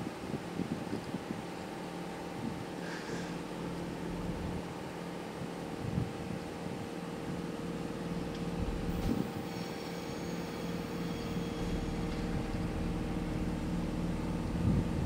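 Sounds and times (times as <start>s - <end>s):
faint high whine: 0.0s - 15.0s
low hum of trains: 0.0s - 15.0s.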